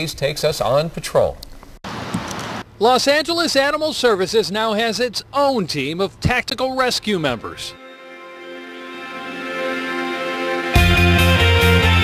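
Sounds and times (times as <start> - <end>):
held music notes: 6.8 - 12.0
rock music with heavy bass: 9.9 - 12.0.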